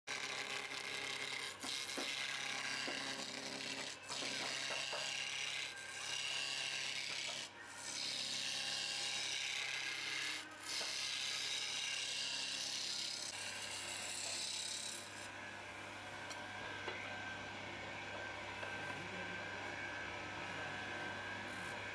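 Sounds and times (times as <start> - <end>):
lathe humming: 0.2 - 21.9.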